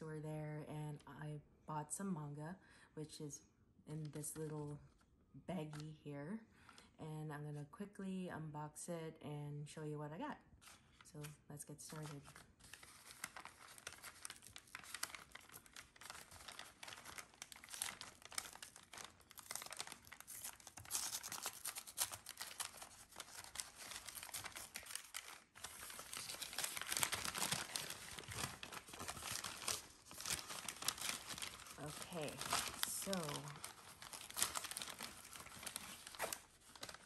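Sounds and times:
paper bag crinkling: 11.9 - 37.0.

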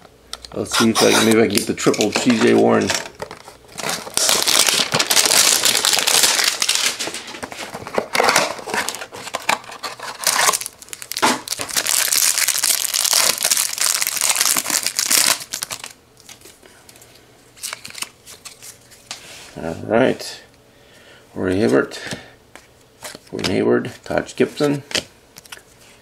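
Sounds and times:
cardboard tearing and paper rustling: 0.7 - 2.9, 3.7 - 15.9.

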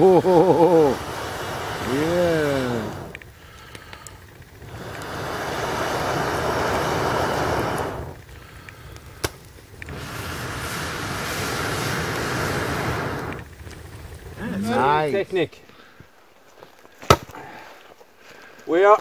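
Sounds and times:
air blowing through a blowpipe: 0.0 - 15.0
fire popping: 0.0 - 19.0.

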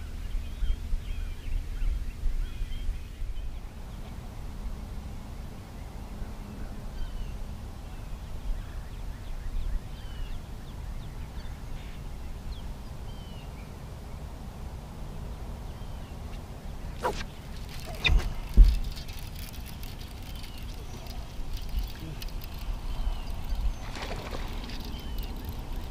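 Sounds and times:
wind: 0.0 - 25.9
fishing rod swept back sharply: 17.0 - 18.2
water: 17.0 - 25.9.

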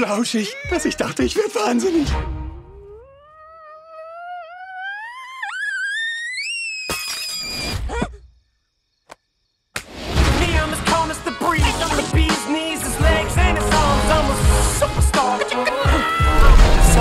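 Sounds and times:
music: 0.7 - 2.7, 10.0 - 17.0
cartoon girl squealing: 2.7 - 8.1.

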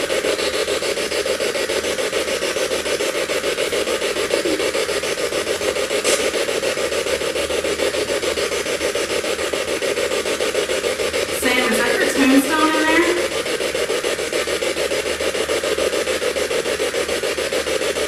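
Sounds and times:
choppy radio static: 4.1 - 5.1, 11.3 - 13.7.

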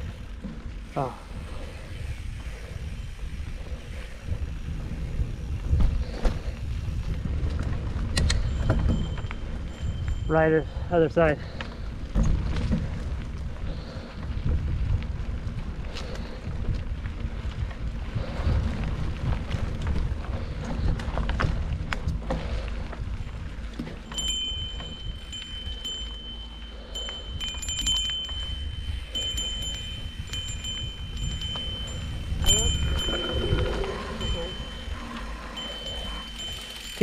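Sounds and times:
tyre and wind rumble: 0.0 - 37.0
chain and frame rattling: 6.0 - 14.1, 18.2 - 37.0.

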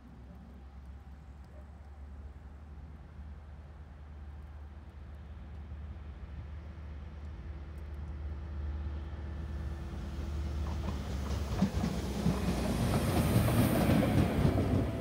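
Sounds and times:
diesel locomotive engine humming: 8.6 - 15.0
train wheels clattering over rail joints: 10.6 - 15.0.

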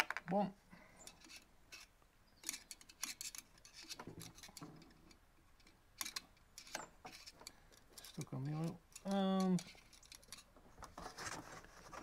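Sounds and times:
screwdriver clicks and scrapes: 1.1 - 10.5.

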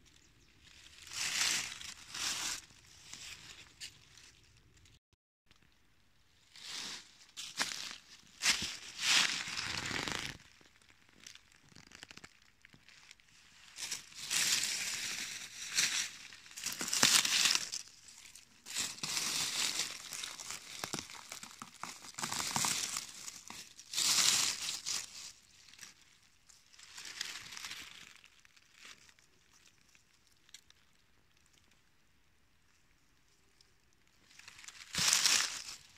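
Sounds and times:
dry leaves crackling and rustling: 0.8 - 4.5, 6.6 - 10.4, 13.1 - 29.9, 34.3 - 35.9.

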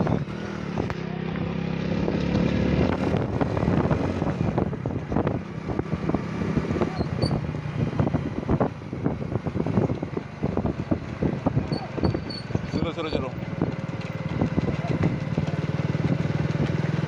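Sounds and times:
vehicle engine running: 0.0 - 17.0
wind buffeting microphone: 1.9 - 17.0.

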